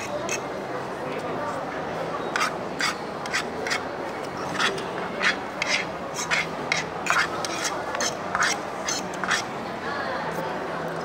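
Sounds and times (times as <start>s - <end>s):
cutlery scraping on a plate: 0.0s - 0.4s, 2.4s - 3.8s, 4.4s - 9.5s.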